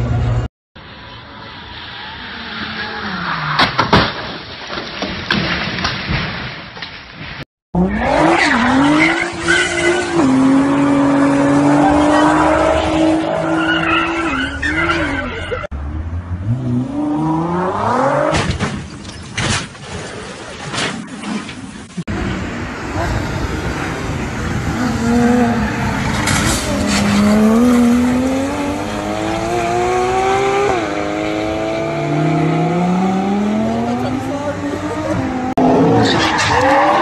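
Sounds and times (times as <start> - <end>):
tyres skidding and squealing: 0.0 - 5.0, 7.2 - 37.0
sharp crack: 3.5 - 7.4
sports car engine revving: 24.6 - 35.9.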